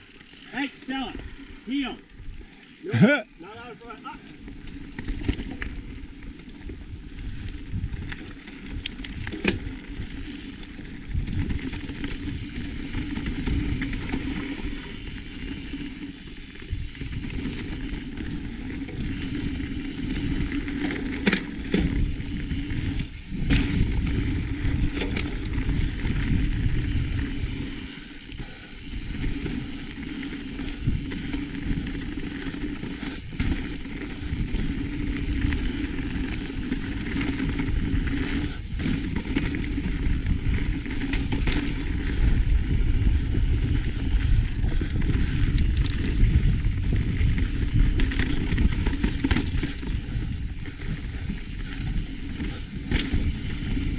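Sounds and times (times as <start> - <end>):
bike rattling over bumps: 0.0 - 53.9
bike tyre noise on dirt: 0.0 - 53.9
wind rushing: 21.8 - 30.0.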